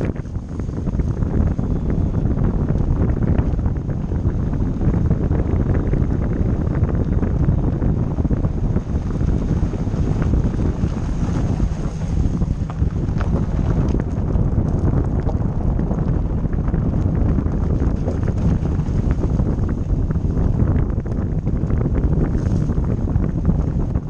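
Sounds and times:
tyres rumbling on gravel: 0.0s - 24.0s
wind buffeting microphone: 0.0s - 24.0s
stones ticking: 8.4s - 23.0s.

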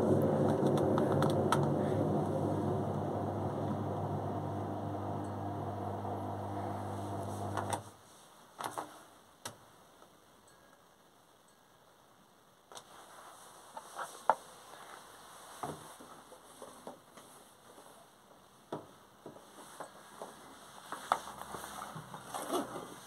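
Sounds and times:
washing machine humming: 0.0s - 7.8s.

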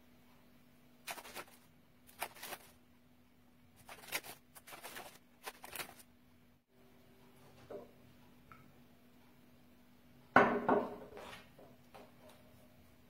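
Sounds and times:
plastic wrapper crinkling: 1.1s - 2.8s, 3.8s - 6.0s.

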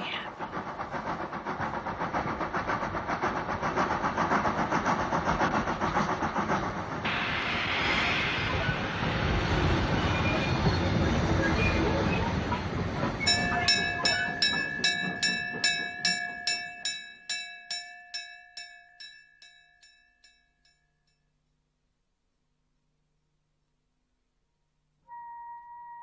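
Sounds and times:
train rumble: 0.0s - 20.0s.

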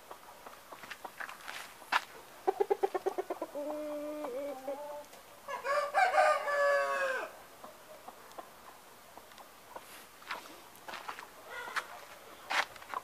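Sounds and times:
rooster clucking: 2.4s - 7.8s
rooster call: 11.5s - 11.9s.

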